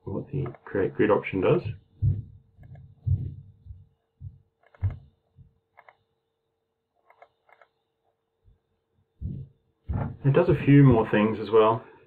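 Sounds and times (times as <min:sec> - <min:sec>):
faint steady hum: 0:00.0 - 0:12.0
low soft thumps: 0:01.6 - 0:05.6, 0:09.2 - 0:10.7
computer mouse clicking: 0:02.6 - 0:02.9, 0:04.6 - 0:05.1, 0:05.7 - 0:06.0, 0:07.0 - 0:07.7.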